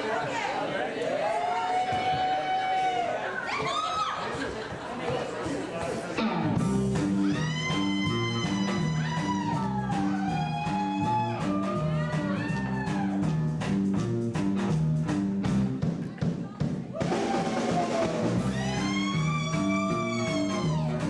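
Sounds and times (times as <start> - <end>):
sliding lead guitar line: 6.2 - 12.6
guitar and bass riff: 6.2 - 15.8, 18.0 - 21.0.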